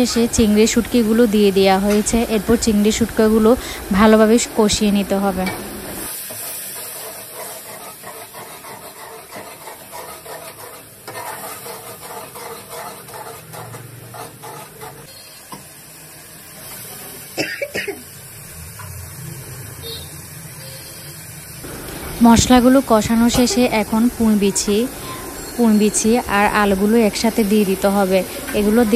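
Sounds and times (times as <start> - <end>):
low sizzle: 0.0 - 28.9
metal spoon scraping pot: 7.3 - 15.1
person coughing: 17.4 - 18.0.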